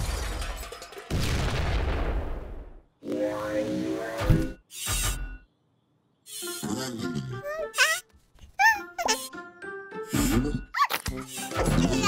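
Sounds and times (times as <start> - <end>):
cartoon background music: 6.3 - 12.0.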